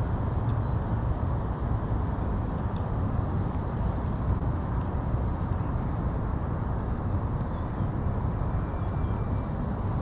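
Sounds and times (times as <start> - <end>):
low outdoor rumble: 0.0 - 10.0
faint bird chirps: 7.5 - 9.5.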